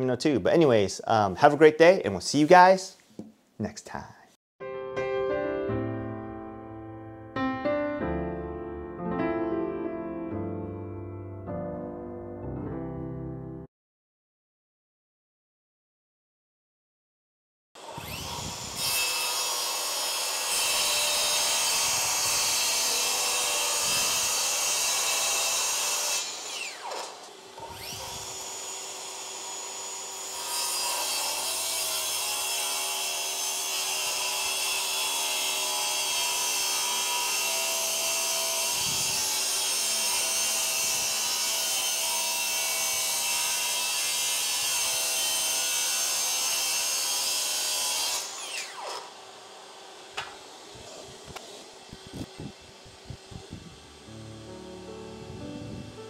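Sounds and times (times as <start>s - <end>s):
circular saw cutting wood: 17.8s - 55.0s.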